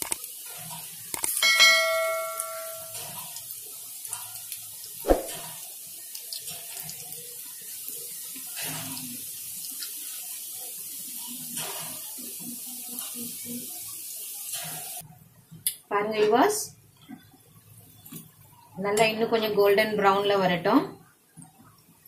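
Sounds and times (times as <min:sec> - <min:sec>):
food deep-frying in oil: 0:00.0 - 0:15.1, 0:16.6 - 0:22.0
bell-like chime: 0:01.4 - 0:03.0.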